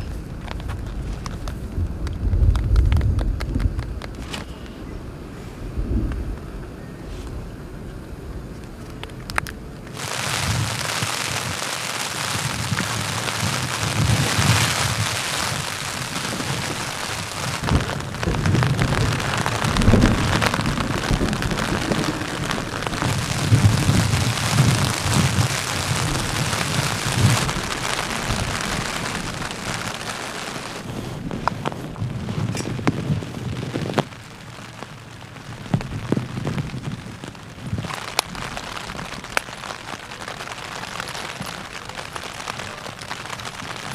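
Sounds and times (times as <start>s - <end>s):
thunder rumbling: 0.0s - 4.3s, 5.0s - 6.8s, 9.7s - 43.9s
heavy rain on a tent: 0.0s - 43.9s
wind gusts: 0.0s - 43.9s.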